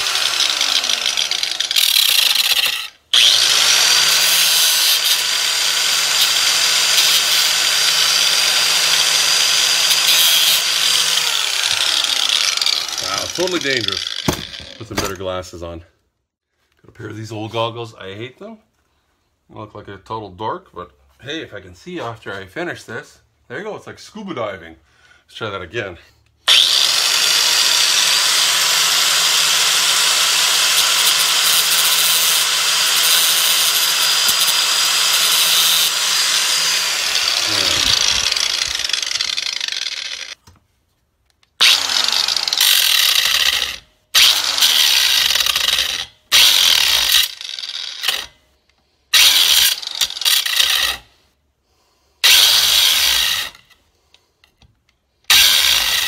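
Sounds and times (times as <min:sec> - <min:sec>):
angle grinder grinding metal: 0:00.0 - 0:15.2, 0:26.5 - 0:40.4, 0:41.6 - 0:48.4, 0:49.1 - 0:51.1, 0:52.2 - 0:53.8, 0:55.3 - 0:56.0.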